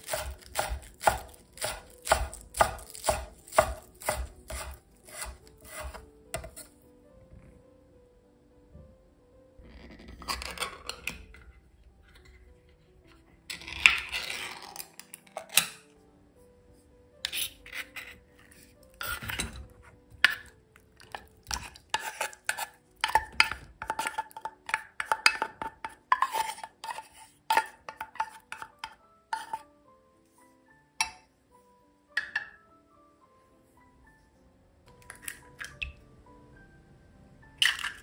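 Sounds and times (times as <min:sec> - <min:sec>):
spoon scraping metal can: 0:03.9 - 0:06.8, 0:10.1 - 0:11.4, 0:13.5 - 0:15.8, 0:17.2 - 0:29.6, 0:37.6 - 0:38.0.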